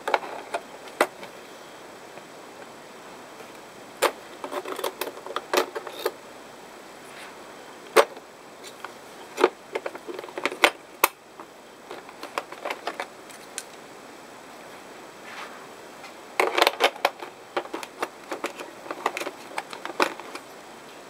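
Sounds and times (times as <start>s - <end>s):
tools clicking in plastic case: 16.4s - 20.4s.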